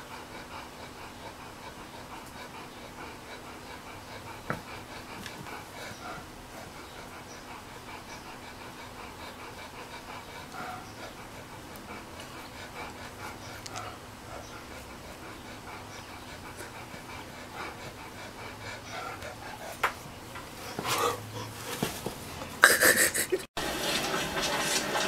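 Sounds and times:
dog panting: 0:00.0 - 0:22.2
knocks and scuffs: 0:19.8 - 0:22.6.

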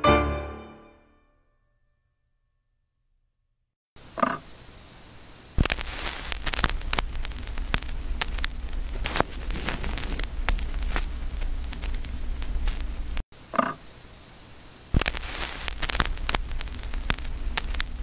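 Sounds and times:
steady hiss: 0:04.0 - 0:18.0
static clicks and pops: 0:05.5 - 0:13.8, 0:14.9 - 0:18.0.

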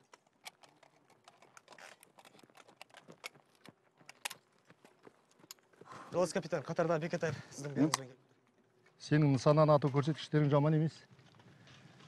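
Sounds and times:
footsteps on hard ground: 0:03.0 - 0:06.0.

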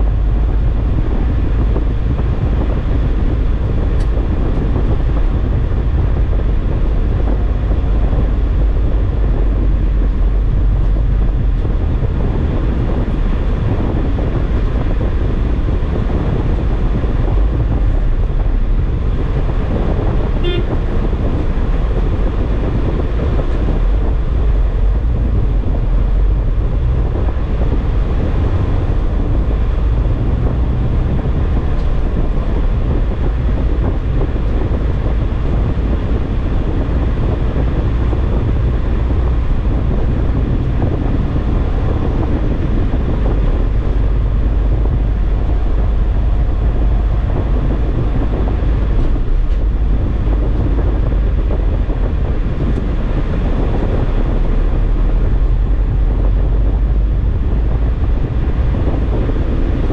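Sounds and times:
engine and tyre rumble: 0:00.0 - 0:59.9
car horn toot: 0:20.3 - 0:21.1.

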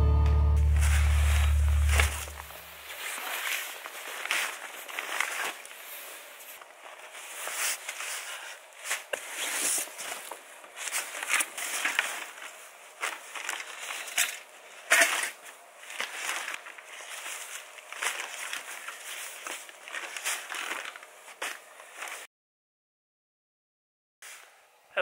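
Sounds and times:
footsteps crunching in snow: 0:00.6 - 0:14.0
nylon backpacks rustling: 0:00.6 - 0:22.3.

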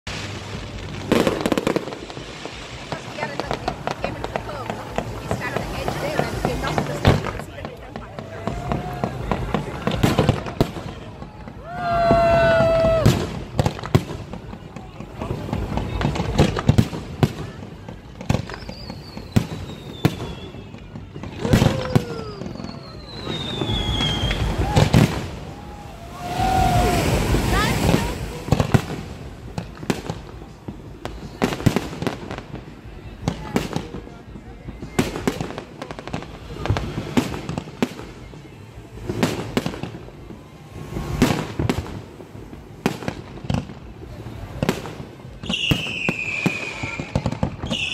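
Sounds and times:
firework bangs: 0:00.0 - 0:47.9
firework whistling: 0:00.1 - 0:47.9.

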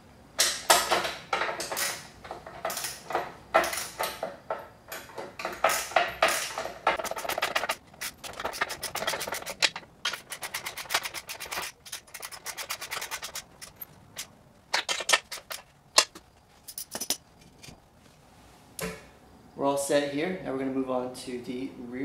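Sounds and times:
socket ratchet clicking: 0:05.6 - 0:17.2.

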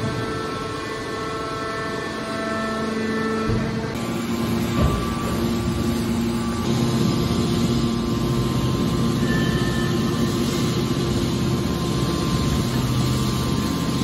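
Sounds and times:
hydraulic power unit humming: 0:00.0 - 0:14.0.

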